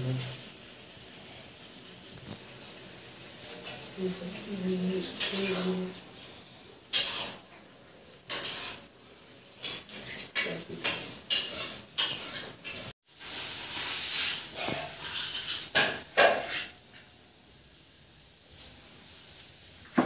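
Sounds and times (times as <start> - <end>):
metal dishes clinking: 3.5 - 5.9, 9.6 - 12.9, 14.6 - 16.8.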